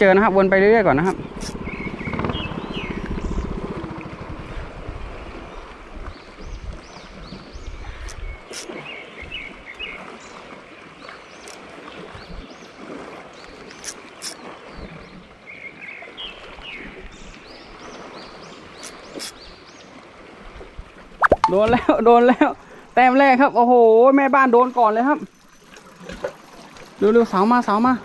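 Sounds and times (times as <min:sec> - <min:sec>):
boat engine running: 0:00.0 - 0:06.6
water lapping at hull: 0:00.0 - 0:28.0.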